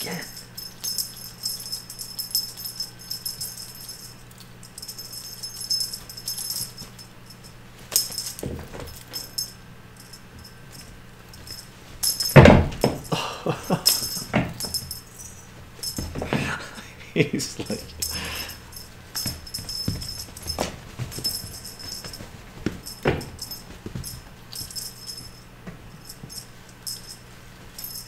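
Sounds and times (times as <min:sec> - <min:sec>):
cat toy rattling and jingling: 0:00.0 - 0:16.8, 0:17.4 - 0:28.0
kittens landing thumps: 0:12.0 - 0:13.2, 0:19.2 - 0:24.9.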